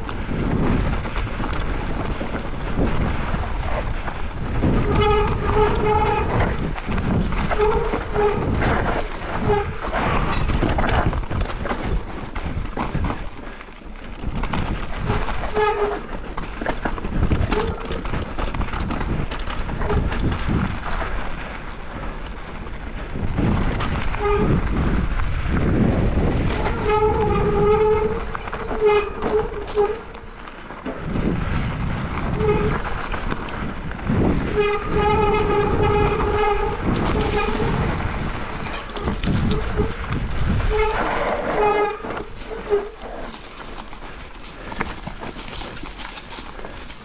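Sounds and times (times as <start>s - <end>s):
bike rattling over rocks: 0.0s - 47.0s
wind on microphone: 0.0s - 47.0s
short horn-like tones: 34.4s - 37.8s, 39.0s - 43.2s.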